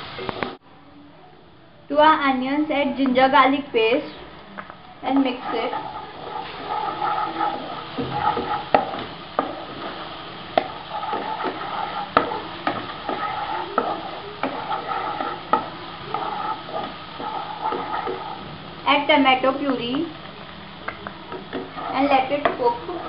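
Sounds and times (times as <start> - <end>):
oil sizzling: 2.6 - 23.0
spatula scraping in wok: 5.0 - 20.2, 21.2 - 23.0.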